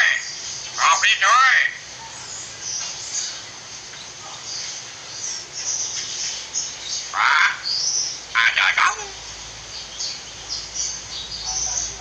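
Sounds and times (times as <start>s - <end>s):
harsh bird call: 7.0s - 12.0s
faint high bird chirps: 8.9s - 12.0s.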